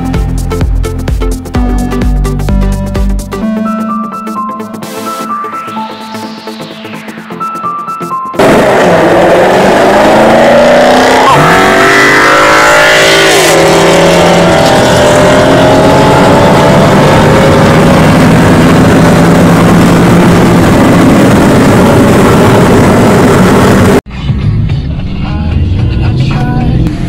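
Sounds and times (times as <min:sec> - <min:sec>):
loud car engine passing: 0:08.4 - 0:24.0.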